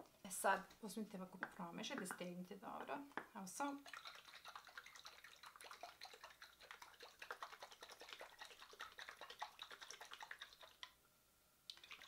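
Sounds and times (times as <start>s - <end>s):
liquid sloshing in shaken glass jar: 3.8s - 10.9s.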